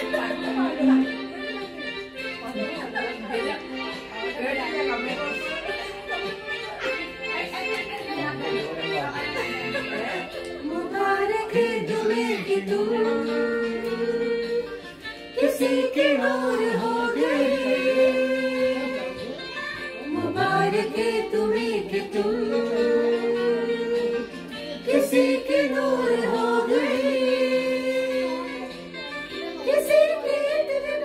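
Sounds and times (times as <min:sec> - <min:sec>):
woman singing wordless melody: 0:29.6 - 0:31.0.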